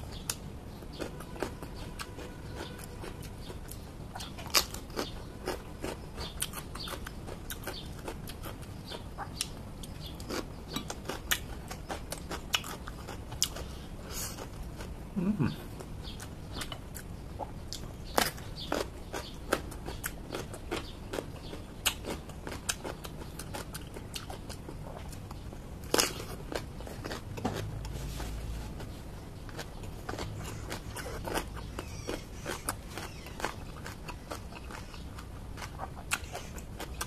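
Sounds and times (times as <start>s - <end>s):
person crunching raw vegetables: 0.1s - 37.0s
low voice hum: 15.1s - 15.8s.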